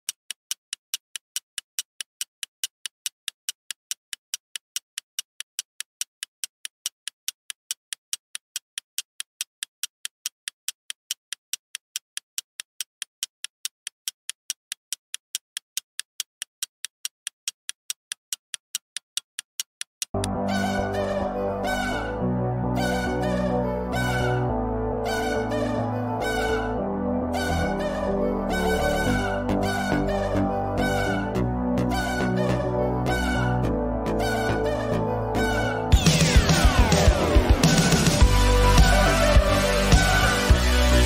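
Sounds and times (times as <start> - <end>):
fast clock ticking: 0.0 - 20.9, 35.4 - 40.8
music: 20.2 - 41.0.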